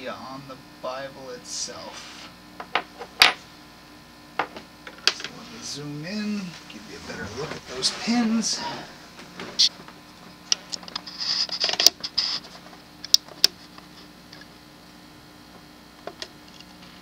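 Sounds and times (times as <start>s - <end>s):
scraping rustle: 6.4s - 9.7s.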